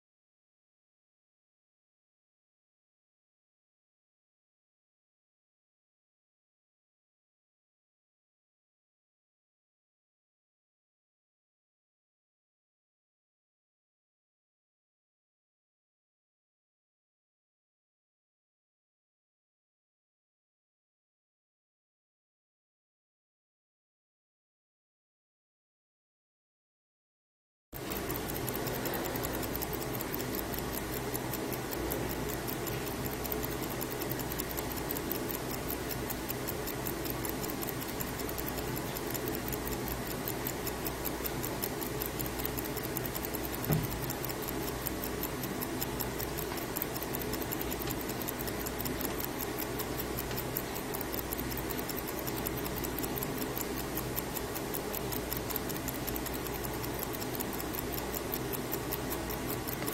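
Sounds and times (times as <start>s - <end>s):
mechanical watches ticking: 27.8s - 59.9s.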